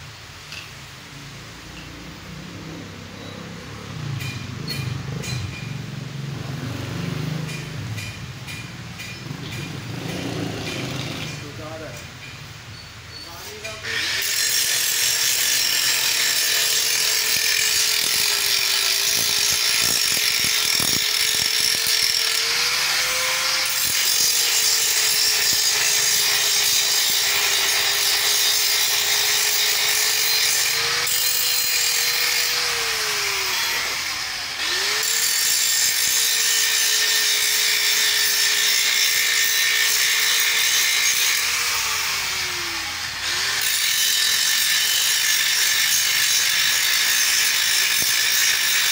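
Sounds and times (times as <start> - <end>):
angle grinder grinding steel: 1.2 - 48.9.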